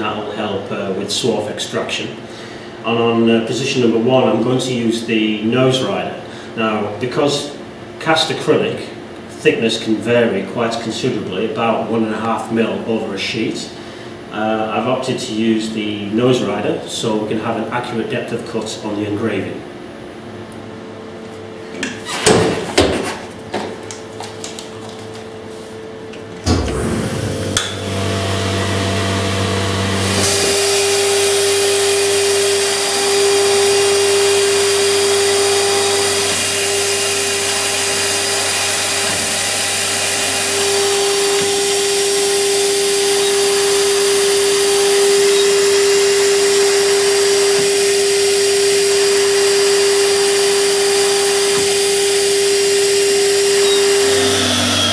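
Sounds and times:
machine motor humming: 23.5s - 54.9s
router spindle whine: 26.4s - 54.9s.

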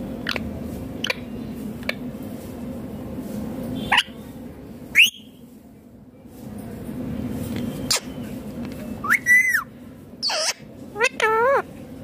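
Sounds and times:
parakeet calls: 3.8s - 4.2s, 9.0s - 11.7s.

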